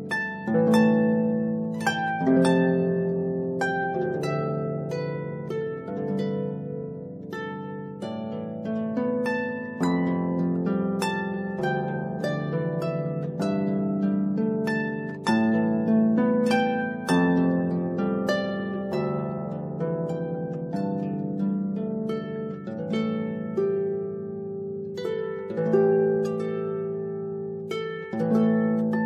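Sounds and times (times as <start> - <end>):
solo harp music: 0.0 - 29.0.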